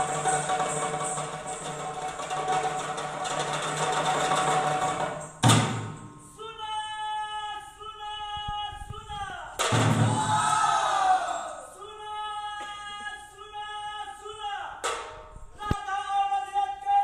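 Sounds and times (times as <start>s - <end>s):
loud drum strike: 0.0s - 6.2s, 8.9s - 10.8s.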